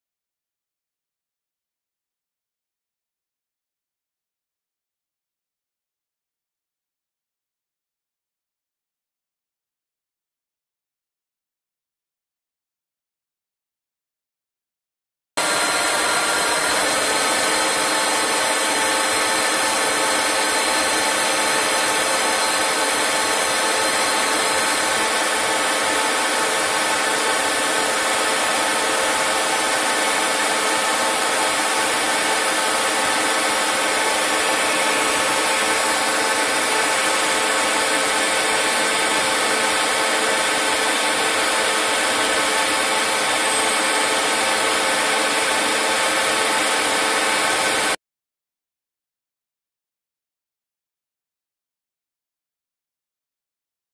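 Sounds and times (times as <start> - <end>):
lathe hissing and whining: 15.4 - 48.0.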